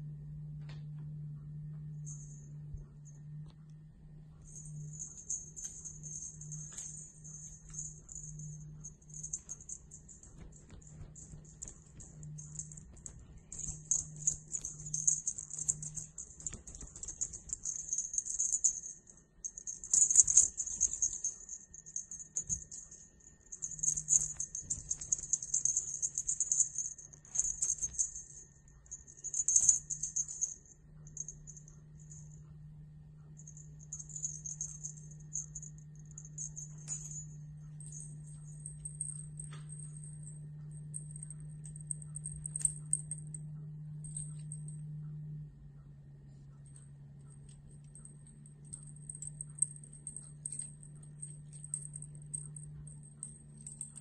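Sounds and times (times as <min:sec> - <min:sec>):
kitten claws scrabbling on carpet: 0:09.3 - 0:14.7.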